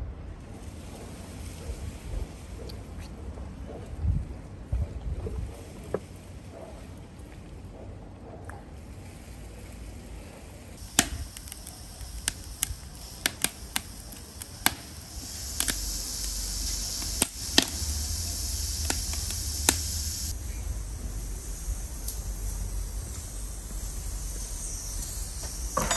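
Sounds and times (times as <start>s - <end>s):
sharp clicks and cracks: 10.8s - 20.4s
pressure cooker hissing steam: 10.8s - 25.9s
low rumble: 11.2s - 25.8s.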